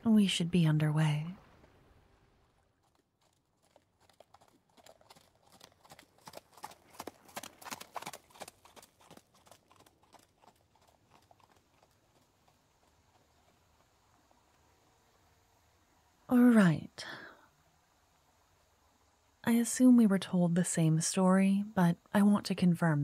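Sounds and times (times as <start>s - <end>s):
horse hooves clip-clopping: 2.5s - 14.9s.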